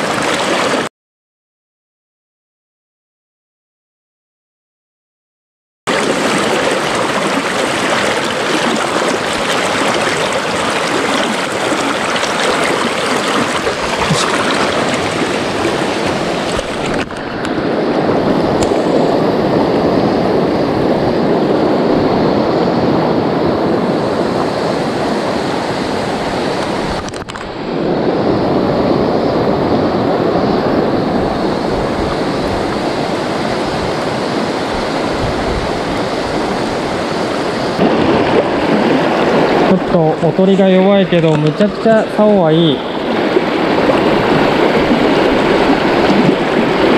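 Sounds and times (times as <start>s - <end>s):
river rushing over rocks: 0.0s - 0.9s, 5.9s - 17.5s, 31.7s - 46.9s.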